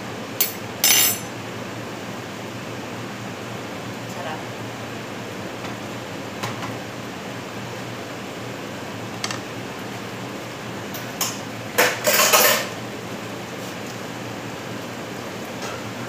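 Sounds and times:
kitchen exhaust fan humming: 0:00.0 - 0:16.0
dishes and utensils clattering: 0:00.4 - 0:01.3, 0:11.2 - 0:12.7.

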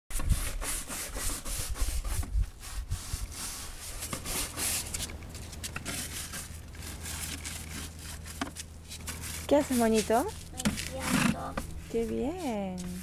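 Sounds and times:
brush scrubbing plastic chair: 0:00.1 - 0:13.0.

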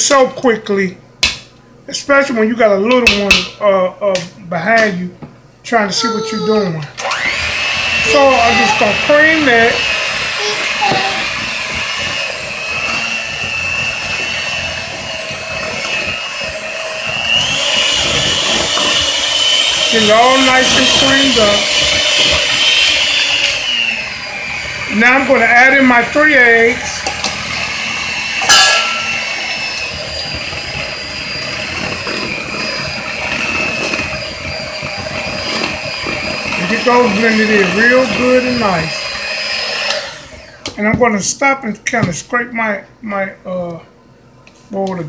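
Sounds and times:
electric hand mixer whine: 0:06.0 - 0:40.8
sharp clink: 0:28.5 - 0:29.1.

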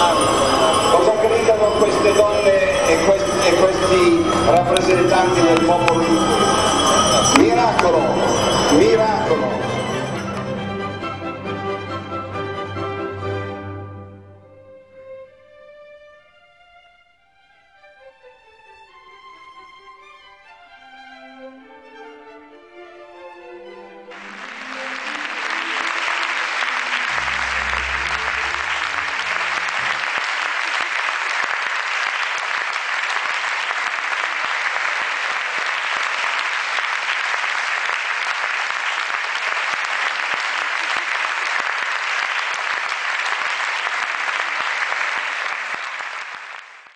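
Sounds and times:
audience applauding: 0:00.0 - 0:10.5, 0:24.1 - 0:46.9
music: 0:00.0 - 0:31.4.

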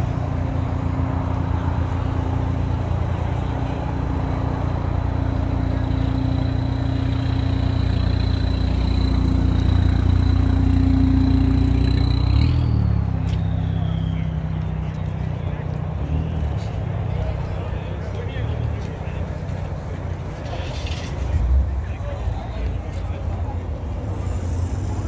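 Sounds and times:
car engine running: 0:00.0 - 0:12.7.

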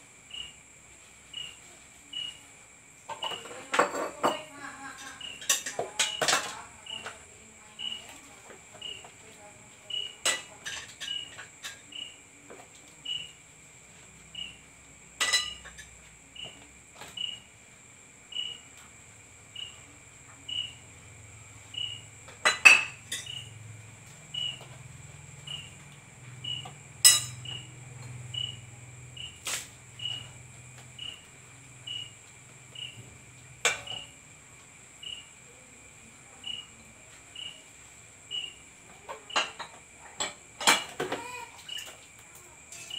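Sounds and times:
crickets trilling: 0:00.0 - 0:42.9
dishes clinking: 0:03.1 - 0:06.6, 0:15.2 - 0:15.9, 0:22.4 - 0:23.4, 0:27.0 - 0:28.2, 0:39.1 - 0:41.2.

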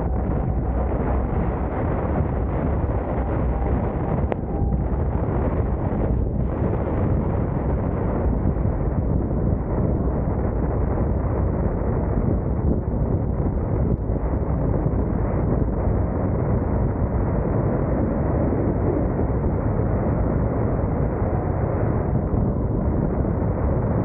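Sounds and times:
car road noise: 0:00.0 - 0:08.0
wind noise on microphone: 0:00.0 - 0:24.0.

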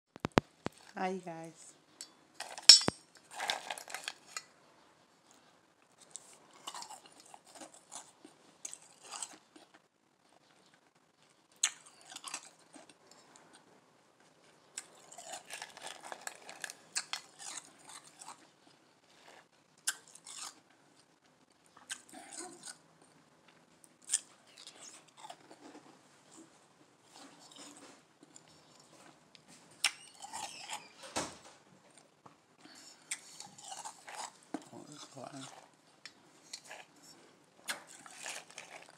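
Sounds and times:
ice crunching in mouth: 0:14.8 - 0:18.4, 0:37.6 - 0:38.9.

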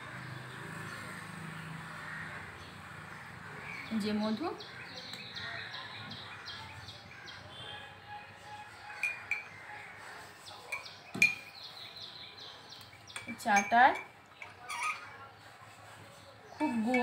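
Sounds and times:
spoon clinking against cup: 0:09.0 - 0:09.6, 0:10.6 - 0:11.6, 0:12.8 - 0:15.2.

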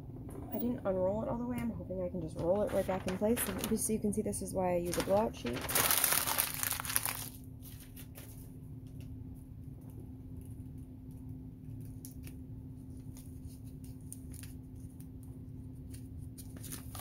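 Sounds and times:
steady low hum: 0:00.0 - 0:17.0
paper crinkling: 0:02.2 - 0:08.6, 0:11.6 - 0:17.0.

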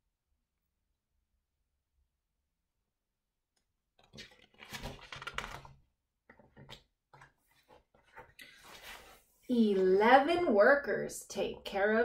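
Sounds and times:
book page turning: 0:04.0 - 0:05.8, 0:06.4 - 0:09.3
paper rustling: 0:04.0 - 0:09.8.

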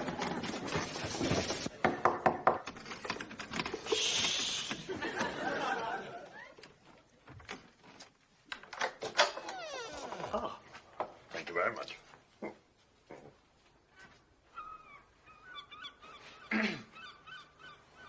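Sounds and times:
paper rustling: 0:00.0 - 0:01.8
short hiss: 0:03.8 - 0:05.0.

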